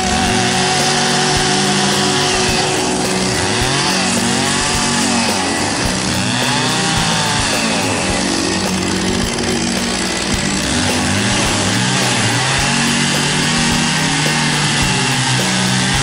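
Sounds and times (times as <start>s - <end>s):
chainsaw running at high revs: 0.0s - 16.0s.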